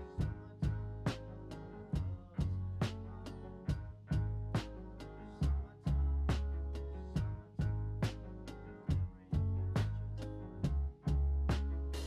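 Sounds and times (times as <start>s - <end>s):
plucked guitar-like notes: 0.0s - 12.0s
steady low bass: 0.0s - 12.0s.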